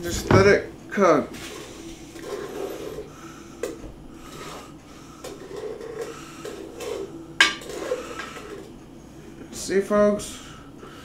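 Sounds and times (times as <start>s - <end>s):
wooden spoon scraping a pot: 1.4s - 3.1s, 4.2s - 8.6s.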